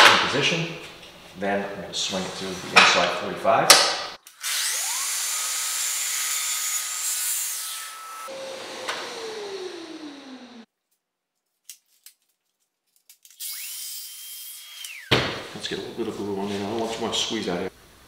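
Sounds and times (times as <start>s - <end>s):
saw motor winding down: 4.4s - 5.9s, 8.1s - 10.7s, 13.4s - 15.1s
miter saw cutting wood: 4.4s - 10.7s.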